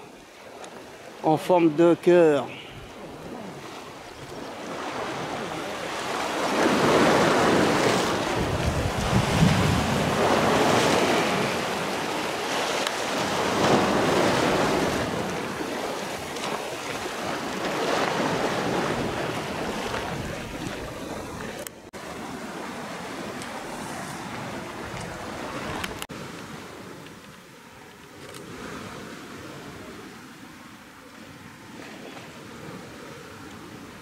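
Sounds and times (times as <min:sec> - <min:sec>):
sea waves on rocky shore: 0:00.0 - 0:34.0
wind rumbling on microphone: 0:02.5 - 0:34.0.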